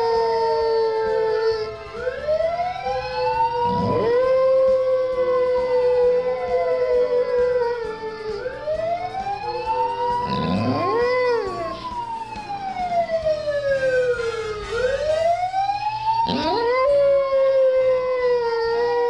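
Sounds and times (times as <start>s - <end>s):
dog howling: 0.0s - 1.8s, 3.3s - 12.3s, 16.1s - 19.0s
wailing siren: 0.0s - 19.0s.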